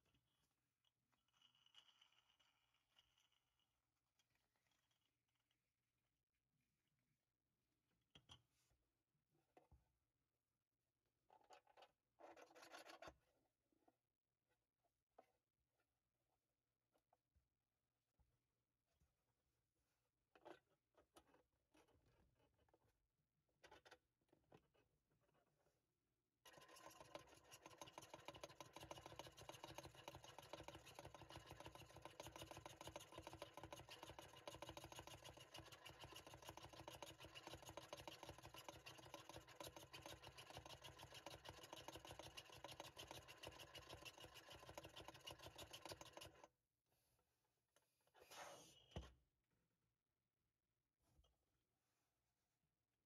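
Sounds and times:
plastic pump rattling: 0:26.5 - 0:46.4.

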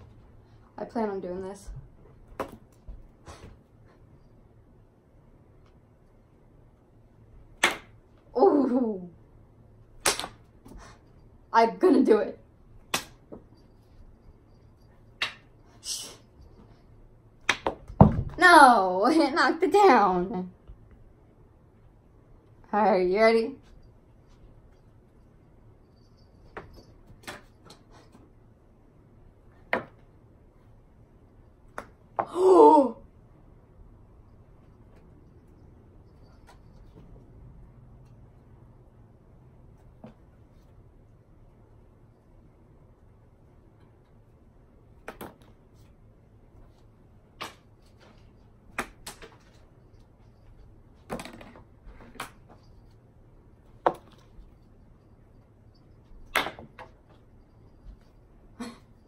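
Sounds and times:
playing cards slapping: 0:10.0 - 0:10.5
playing cards tapping and flicking: 0:17.4 - 0:18.0.

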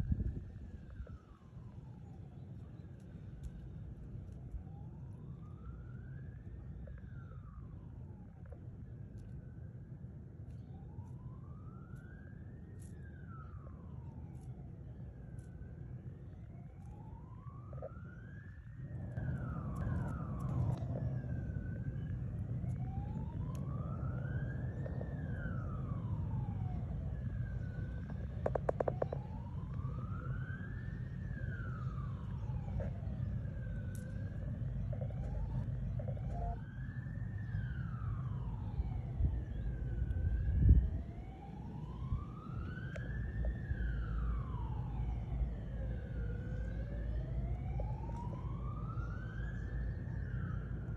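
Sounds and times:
low rumble: 0:00.0 - 0:01.2
emergency siren wailing: 0:00.0 - 0:50.9.

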